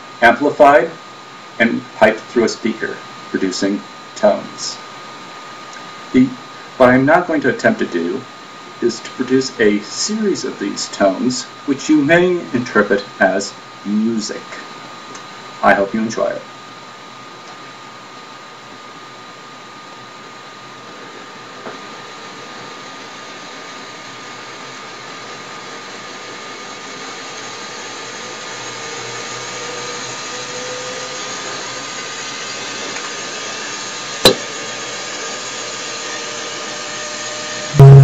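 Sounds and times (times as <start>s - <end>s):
small electric motor whirring: 25.7s - 38.0s
sharp click: 34.2s - 34.5s.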